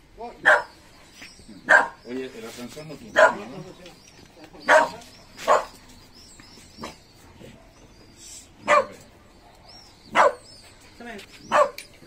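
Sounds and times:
dog barking: 0.4s - 0.8s, 1.7s - 2.0s, 3.2s - 3.5s, 4.7s - 5.8s, 8.6s - 10.5s, 11.5s - 11.8s.

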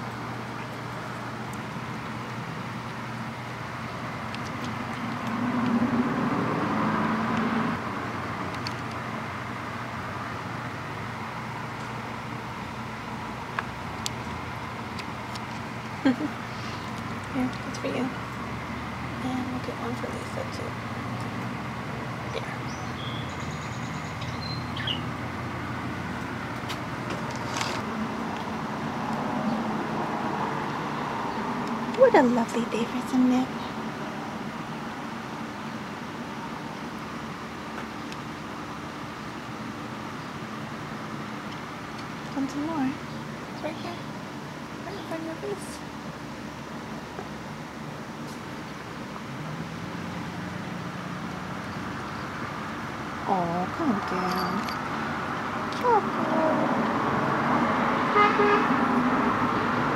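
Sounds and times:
low background hum: 7.8s - 29.8s
constant hiss: 8.0s - 23.5s.

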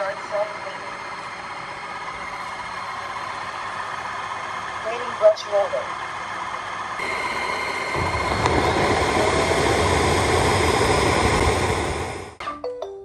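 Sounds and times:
steady high whine: 0.0s - 12.4s
vacuum mop motor and suction: 7.0s - 12.4s.

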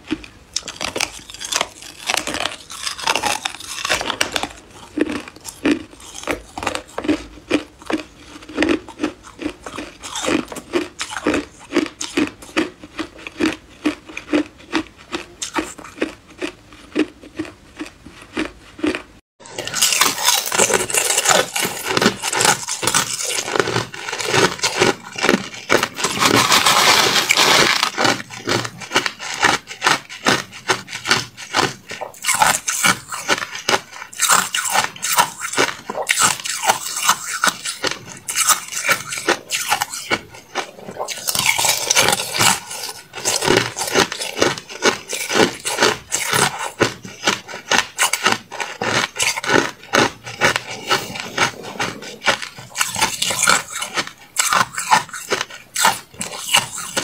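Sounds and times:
ice being crunched and chewed: 0.0s - 57.0s.

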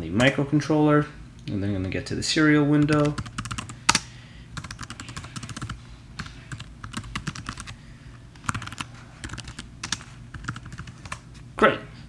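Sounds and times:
keyboard keys clicking: 2.8s - 4.0s, 4.6s - 7.8s, 8.4s - 11.2s.

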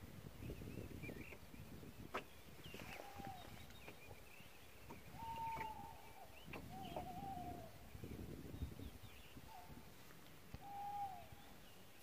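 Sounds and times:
animal whistled calls: 5.1s - 7.7s, 10.6s - 11.4s.

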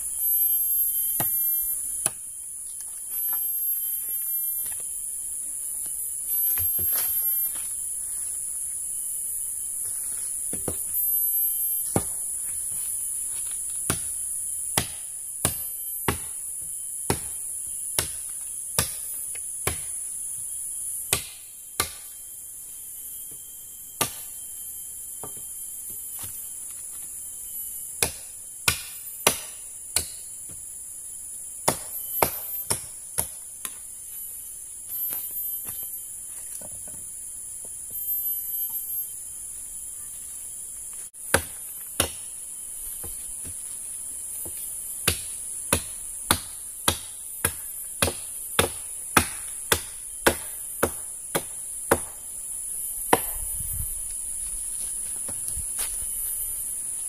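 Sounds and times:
buzz of forest insects: 0.0s - 57.0s
chopping strikes on wood: 11.8s - 12.2s, 13.8s - 17.4s, 18.0s - 20.0s, 21.1s - 22.1s, 24.0s - 24.3s, 28.0s - 30.6s, 31.6s - 33.8s, 41.3s - 42.3s, 44.4s - 52.2s, 53.1s - 53.5s.

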